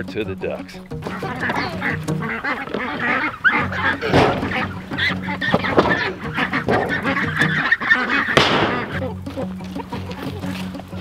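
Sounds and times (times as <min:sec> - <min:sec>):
ducks quacking: 0:00.0 - 0:11.0
sharp knocks of metal tub: 0:03.8 - 0:04.8, 0:05.5 - 0:07.6.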